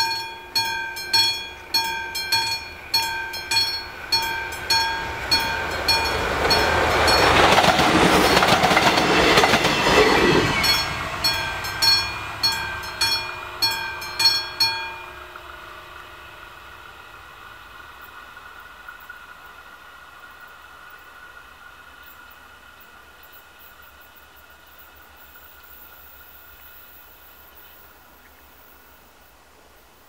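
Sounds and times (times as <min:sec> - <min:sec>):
level-crossing bell ringing: 0:00.0 - 0:15.4
train wheel clatter: 0:00.0 - 0:21.0
diesel railcar passing: 0:00.0 - 0:29.4.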